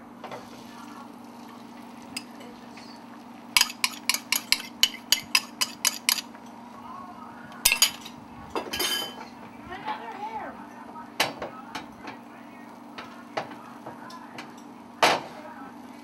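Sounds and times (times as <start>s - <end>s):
utensil clinking against bowl: 3.6s - 6.6s, 7.6s - 9.4s.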